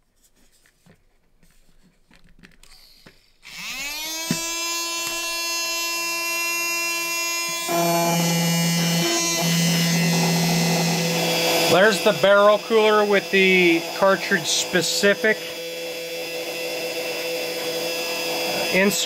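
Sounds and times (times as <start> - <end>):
electric blower motor whine: 2.7 - 19.0
low hum: 7.4 - 12.6.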